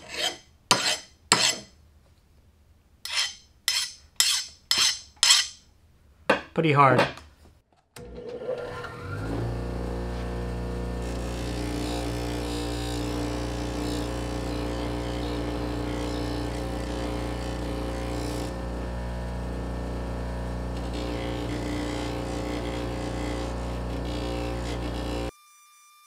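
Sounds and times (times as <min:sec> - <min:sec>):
steel rubbing on grinding wheel: 0:03.1 - 0:05.6, 0:10.0 - 0:18.6, 0:20.8 - 0:25.3
bench grinder humming: 0:08.0 - 0:25.3.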